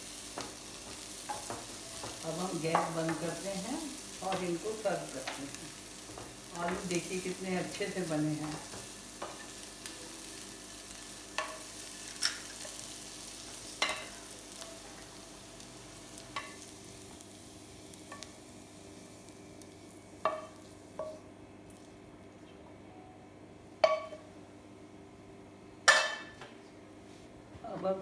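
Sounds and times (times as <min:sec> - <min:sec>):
spatula stirring potatoes in pan: 0:00.0 - 0:09.7
faint pan sizzle: 0:00.0 - 0:22.1.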